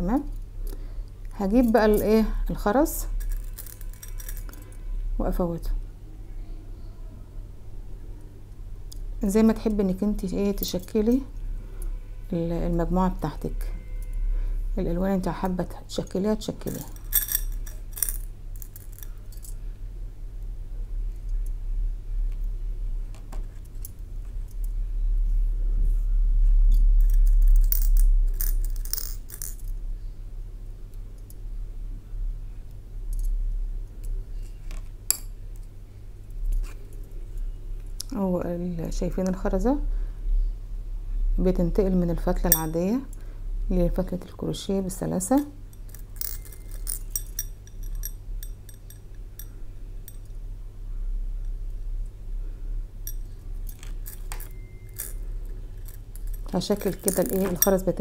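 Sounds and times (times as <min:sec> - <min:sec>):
beads clinking against glass bowl: 0:03.0 - 0:04.9, 0:16.6 - 0:19.6, 0:26.7 - 0:29.7, 0:42.4 - 0:42.8, 0:45.8 - 0:50.3, 0:53.1 - 0:58.0.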